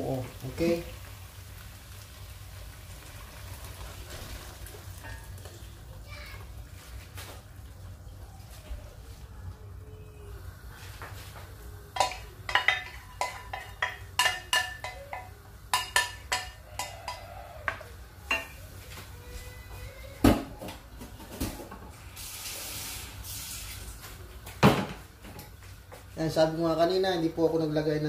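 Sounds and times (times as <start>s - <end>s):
metal pans clinking: 11.9s - 18.7s.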